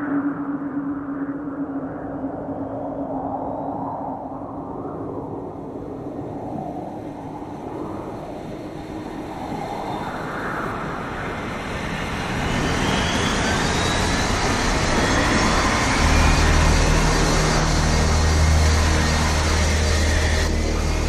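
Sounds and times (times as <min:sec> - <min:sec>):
faint rising whine: 0:00.0 - 0:21.0
aircraft engine rumbling: 0:06.2 - 0:21.0.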